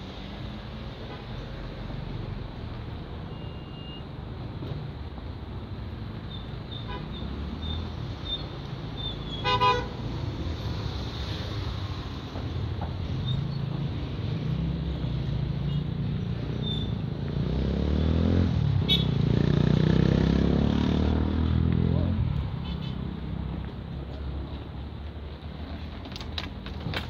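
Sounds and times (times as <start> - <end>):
city street traffic: 0.0 - 27.0
motor vehicle passing close: 16.8 - 23.6.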